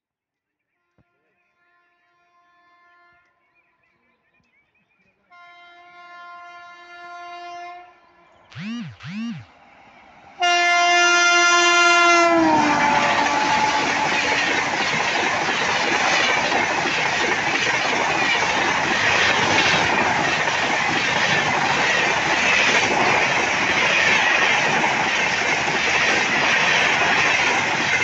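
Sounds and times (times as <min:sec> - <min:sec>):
train wheels rushing on rail: 0:10.1 - 0:28.0.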